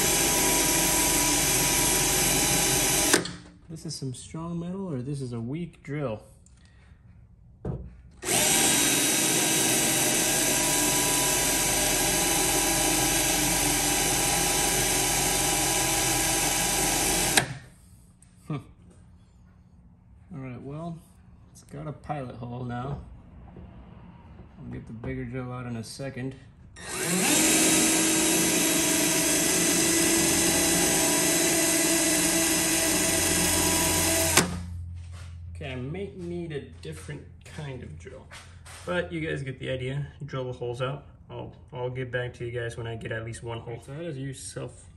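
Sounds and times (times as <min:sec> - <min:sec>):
cordless drill boring through metal: 0:00.0 - 0:03.4, 0:08.2 - 0:17.6, 0:26.8 - 0:34.7.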